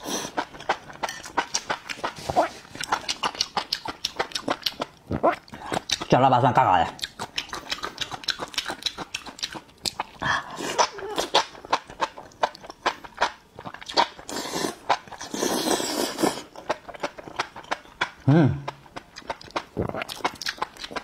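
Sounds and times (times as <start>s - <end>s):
wet chewing with crunches: 0.0s - 21.0s
slurping: 13.6s - 17.2s.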